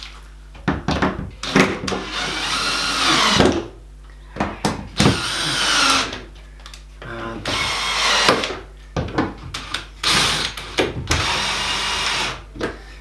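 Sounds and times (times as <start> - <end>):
cordless drill running: 2.0 - 3.4, 5.0 - 6.2, 7.5 - 8.4, 10.0 - 12.4.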